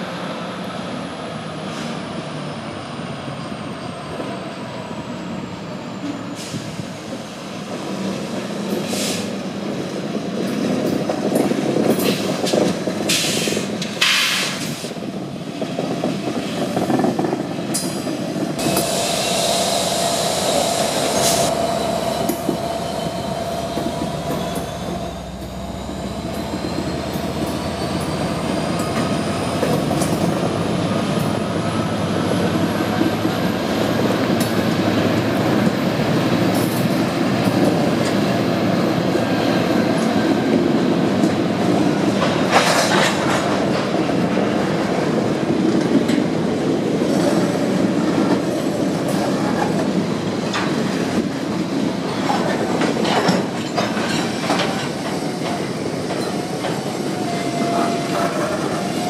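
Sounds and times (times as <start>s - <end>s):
squealing train wheels: 15.9s - 44.8s, 47.0s - 59.0s
wheels clacking over rail joints: 40.0s - 59.0s.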